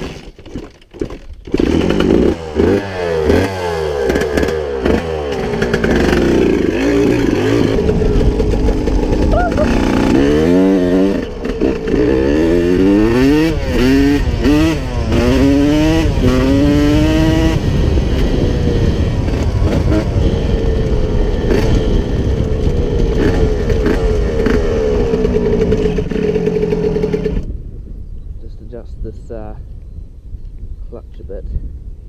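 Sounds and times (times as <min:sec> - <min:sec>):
motorcycle engine revving: 0:01.0 - 0:27.6.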